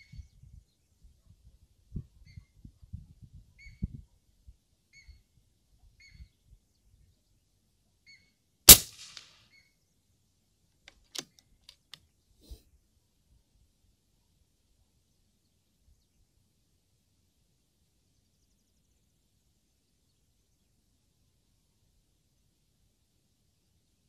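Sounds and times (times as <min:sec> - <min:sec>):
air rifle shot: 0:08.7 - 0:09.3.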